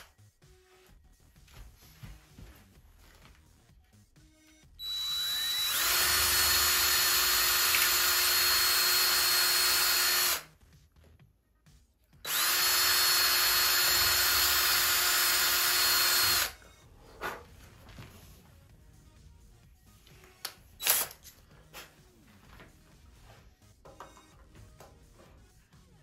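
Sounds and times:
cordless drill whining: 4.8s - 10.5s, 12.2s - 16.6s.

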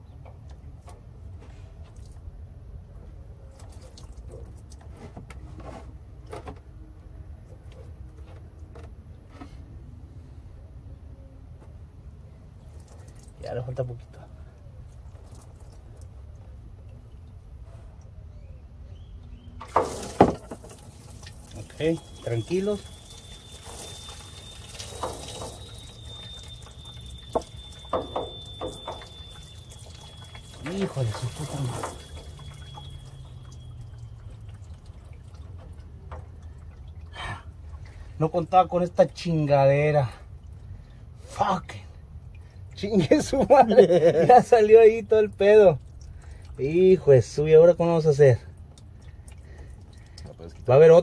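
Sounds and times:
fuel pouring and splashing: 3.6s - 4.8s, 12.6s - 13.4s, 14.9s - 16.2s, 19.6s - 38.6s, 45.2s - 47.4s, 48.1s - 51.0s
liquid dripping into steel drum: 19.6s - 38.2s, 48.5s - 50.7s.

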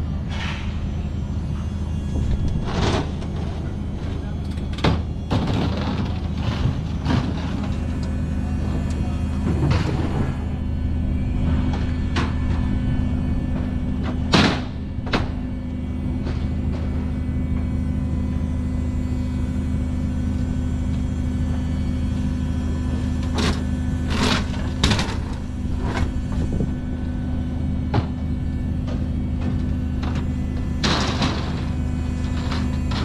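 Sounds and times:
low mechanical drone of machinery: 0.0s - 33.0s.

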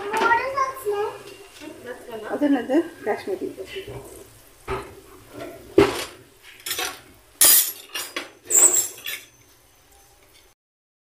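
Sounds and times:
utensils and dishes clattering: 0.0s - 10.6s.

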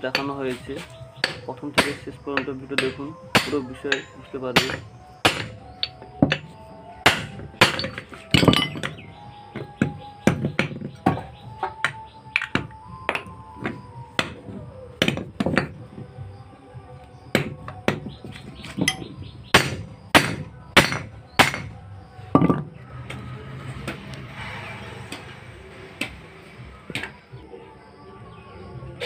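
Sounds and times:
hammer striking metal joint: 1.2s - 9.0s, 17.4s - 21.7s.

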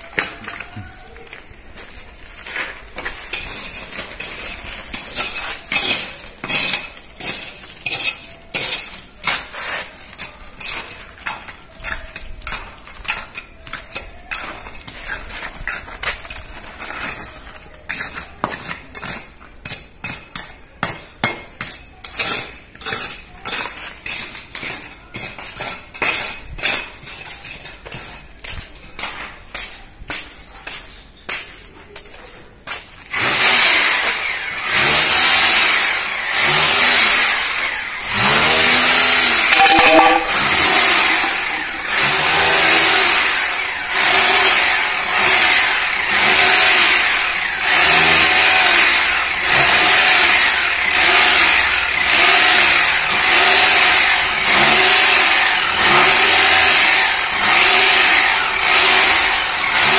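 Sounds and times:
trowel scraping wet mortar: 2.4s - 20.5s, 38.2s - 46.6s.

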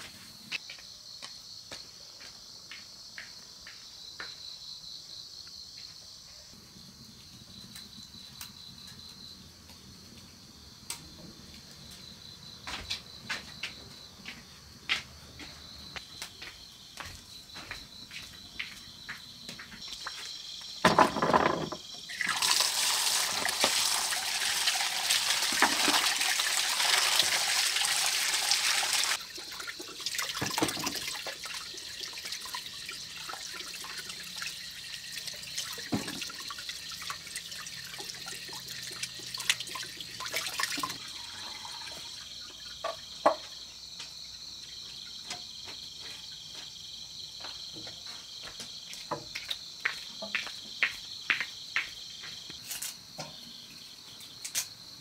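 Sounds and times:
crickets chirping: 0.0s - 55.0s
clunk: 20.8s - 21.9s
knocks and clatter: 20.8s - 21.9s
water pouring: 22.1s - 43.0s.

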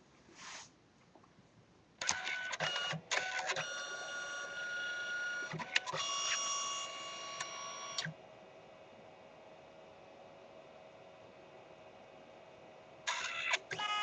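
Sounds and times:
printer motor whine: 2.0s - 8.3s, 13.1s - 14.0s.

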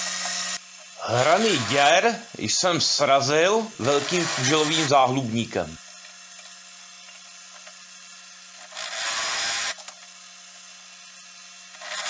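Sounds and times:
countersink cutting steel: 0.0s - 5.4s, 8.6s - 9.9s, 11.6s - 12.0s
drill press humming: 0.0s - 12.0s.

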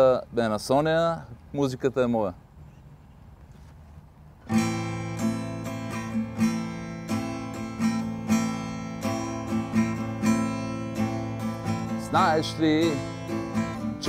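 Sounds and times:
guitar picking over chords: 4.5s - 14.0s.

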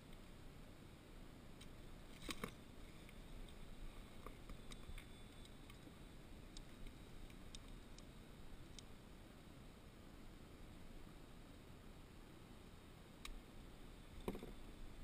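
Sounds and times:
faint ticks: 3.0s - 8.9s.

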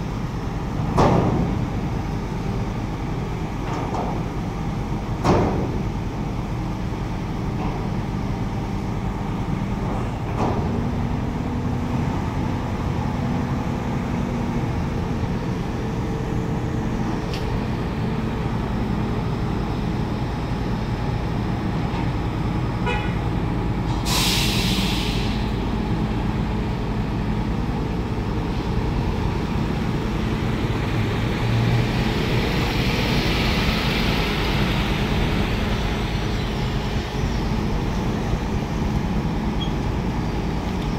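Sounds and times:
heavy diesel engine running: 0.0s - 40.9s
sharp hiss of released air: 23.9s - 25.6s.

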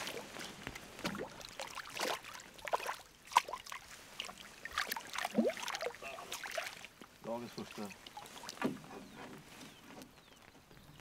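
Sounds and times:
fish thrashing and splashing: 0.0s - 7.0s.

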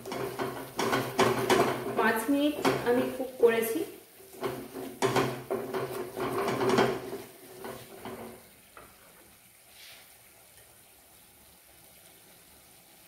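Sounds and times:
spatula knocking against pan: 0.0s - 3.2s, 4.3s - 8.4s
wooden spatula scraping a pan: 0.0s - 10.1s.

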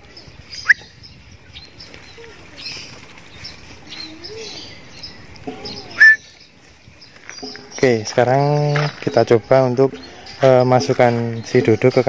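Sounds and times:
birds chirping: 0.0s - 12.0s
loud sharp bird call: 0.5s - 1.0s, 5.5s - 6.5s.

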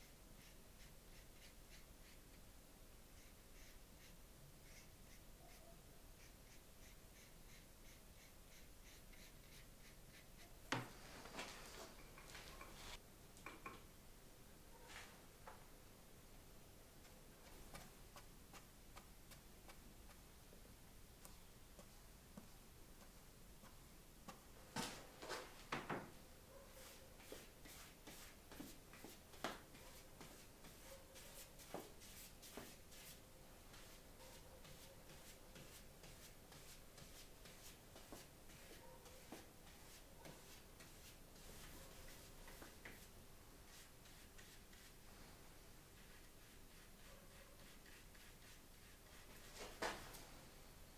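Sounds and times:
paintbrush strokes on paper: 0.0s - 2.4s, 3.1s - 13.0s, 17.0s - 20.3s, 26.5s - 50.2s.

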